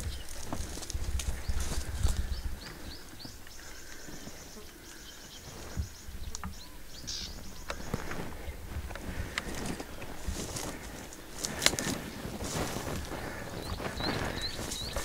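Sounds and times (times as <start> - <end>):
footsteps through reeds: 0.0 - 15.0
reeds rustling: 0.0 - 15.0
bird chirping and trilling: 1.3 - 8.6, 10.5 - 15.0.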